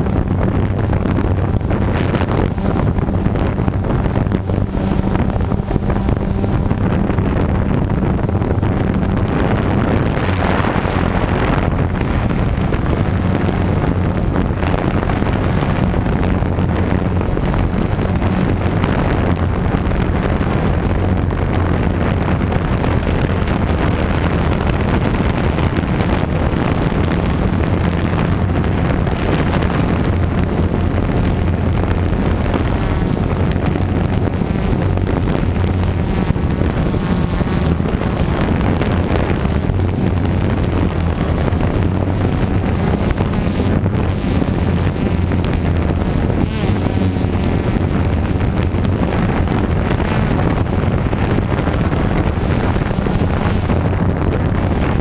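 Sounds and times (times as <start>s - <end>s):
drone motors humming: 0.0s - 55.0s
wind on microphone: 0.0s - 55.0s.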